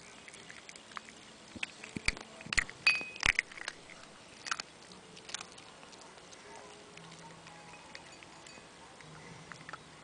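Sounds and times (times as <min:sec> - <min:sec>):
dog crunching a hard cookie: 0:00.0 - 0:09.9
clinks against porcelain bowl: 0:02.9 - 0:03.4.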